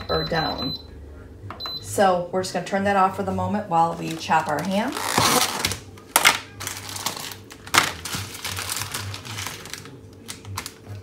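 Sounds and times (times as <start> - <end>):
plastic package crinkling: 3.9 - 11.0.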